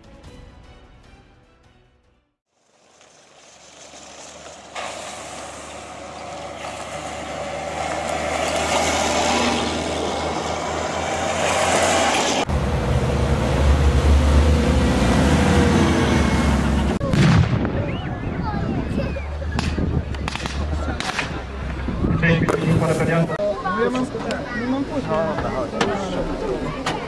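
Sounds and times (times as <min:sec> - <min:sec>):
tyre and road noise: 0:02.5 - 0:27.0
diesel engine droning: 0:02.6 - 0:17.2, 0:17.9 - 0:23.4.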